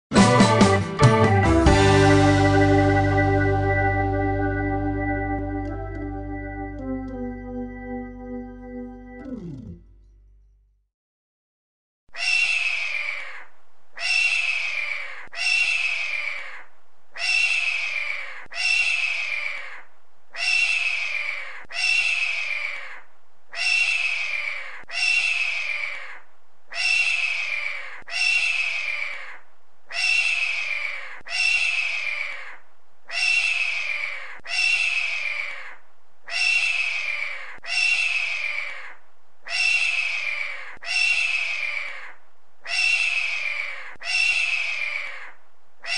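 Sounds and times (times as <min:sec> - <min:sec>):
hawk screaming: 0:30.0 - 0:45.9.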